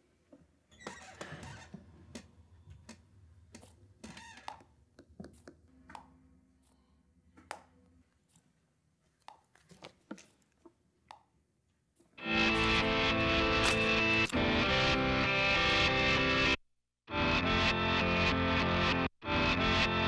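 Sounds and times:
distorted electric guitar music: 0:12.2 - 0:20.0.

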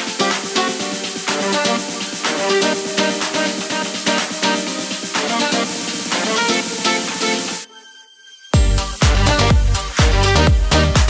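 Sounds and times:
electronic dance music: 0:00.0 - 0:08.0, 0:08.6 - 0:11.0
heavy bass kick drums: 0:08.6 - 0:11.0.

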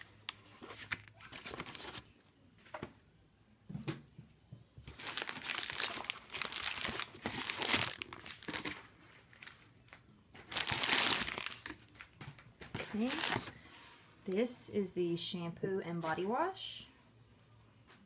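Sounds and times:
plastic packing crinkling: 0:04.9 - 0:13.6.

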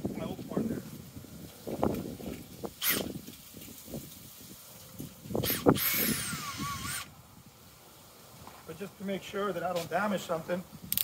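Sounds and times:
cordless drill whining: 0:02.8 - 0:03.2, 0:05.4 - 0:07.1.

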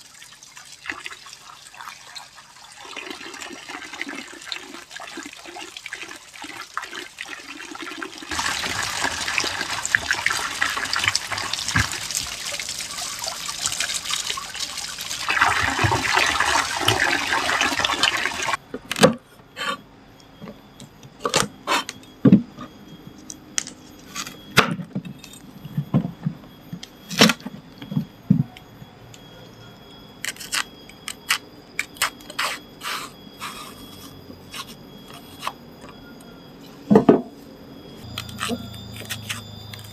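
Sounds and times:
water splashing into basin: 0:00.1 - 0:18.6.

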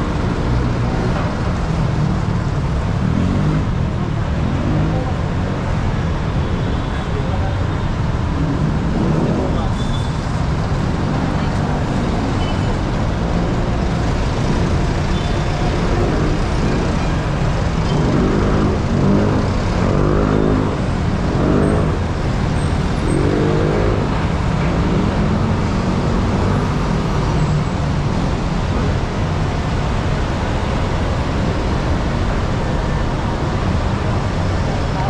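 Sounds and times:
traffic rumble: 0:00.0 - 0:35.0.

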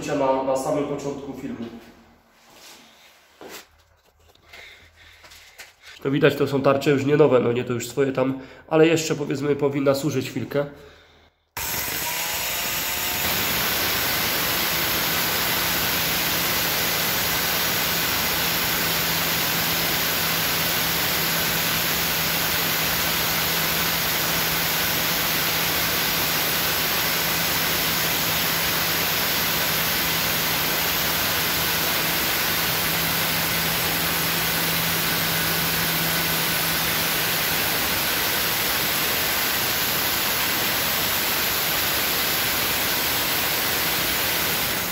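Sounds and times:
power cutter cutting tile: 0:11.6 - 0:44.9.

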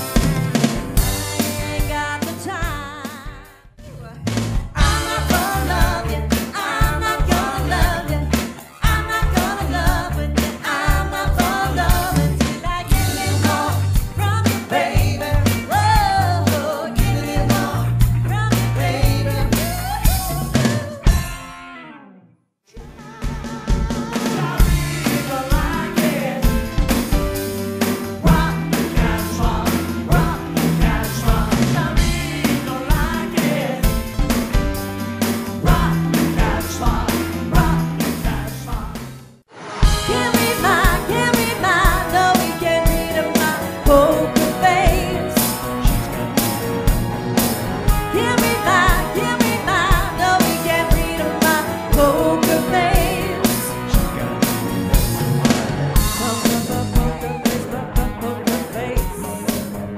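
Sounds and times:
drum beat: 0:00.0 - 0:03.6, 0:04.2 - 0:16.3, 0:22.8 - 0:39.2, 0:39.8 - 0:59.8
bass line: 0:00.0 - 0:21.5, 0:22.8 - 0:59.9
live band playing pop-rock: 0:00.0 - 0:22.0, 0:22.8 - 0:59.9
woman singing with vibrato: 0:01.3 - 0:21.2, 0:40.0 - 0:45.9, 0:48.0 - 0:54.0, 0:56.2 - 0:59.8
person singing: 0:35.6 - 0:39.0, 0:39.8 - 0:46.2, 0:48.0 - 0:59.9.

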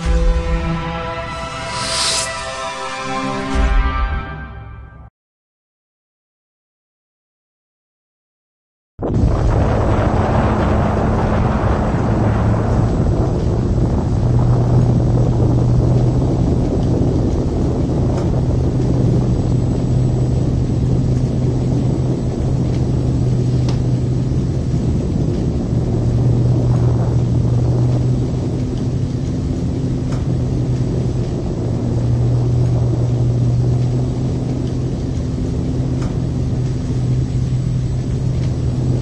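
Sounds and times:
constant low hum: 0:09.0 - 0:39.0
explosion deep rumble: 0:09.0 - 0:39.0.

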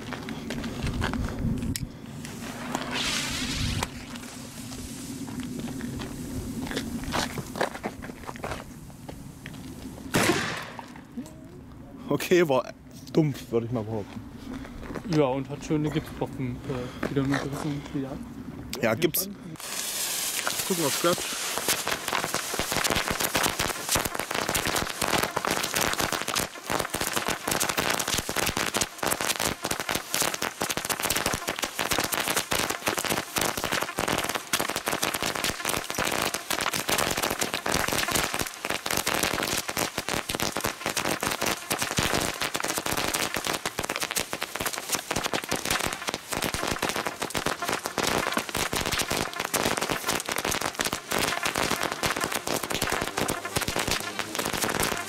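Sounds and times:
firecracker string bangs: 0:10.1 - 0:11.0.

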